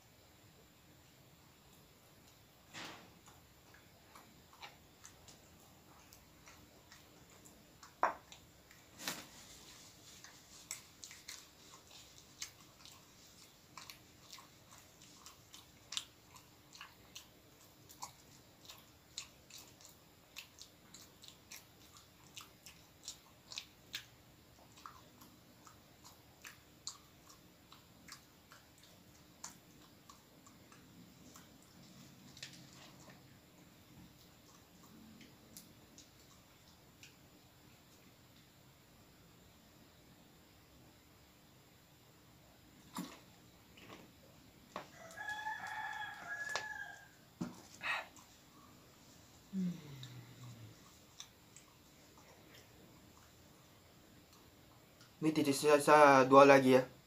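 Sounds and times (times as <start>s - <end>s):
chewing bread: 1.5s - 40.1s, 42.4s - 56.1s
mouth clicks and smacks: 10.6s - 38.5s, 49.5s - 55.2s.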